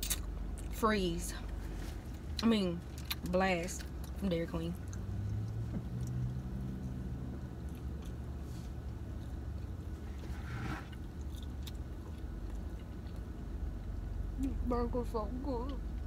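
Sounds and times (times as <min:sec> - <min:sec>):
low car cabin hum: 0:00.2 - 0:16.0
biting and chewing: 0:02.0 - 0:14.0.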